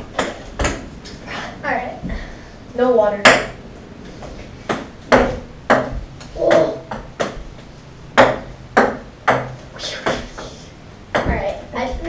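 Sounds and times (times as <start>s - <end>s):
ping-pong ball bouncing on wood: 0.1s - 0.9s, 3.2s - 3.6s, 4.7s - 10.5s, 11.1s - 12.0s.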